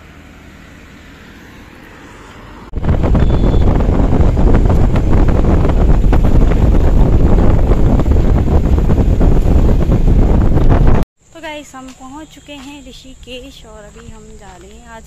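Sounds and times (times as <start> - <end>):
vehicle road and engine noise: 0.0 - 15.0
wind buffeting microphone: 2.7 - 11.1.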